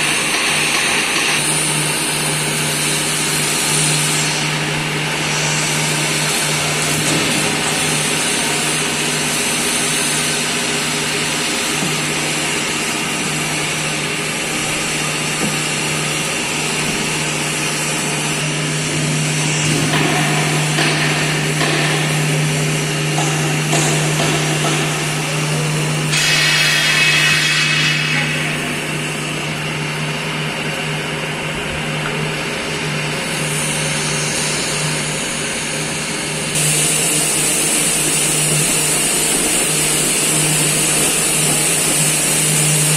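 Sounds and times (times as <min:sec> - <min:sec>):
machinery humming: 0:00.0 - 0:42.9
loud rushing noise: 0:15.9 - 0:29.9.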